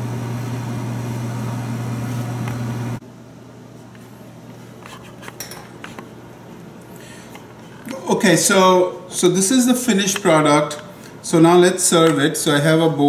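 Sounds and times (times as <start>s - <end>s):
kitchen fan humming: 0.0s - 13.0s
pot on stone countertop: 4.8s - 6.1s.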